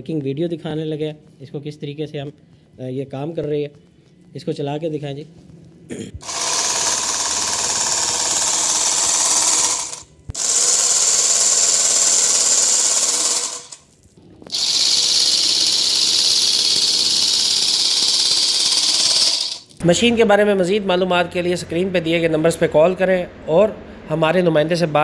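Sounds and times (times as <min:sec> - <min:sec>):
sewing machine buzzing: 0:06.2 - 0:13.9, 0:14.5 - 0:19.8.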